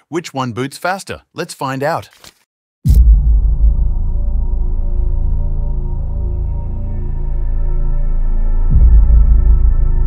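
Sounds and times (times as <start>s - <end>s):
deep hit: 2.9s - 10.0s
low drone: 3.0s - 10.0s.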